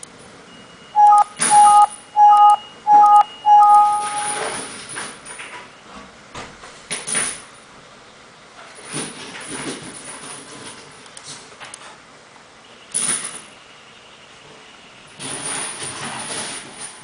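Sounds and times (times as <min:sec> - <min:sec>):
loud beeps: 0:00.6 - 0:04.6.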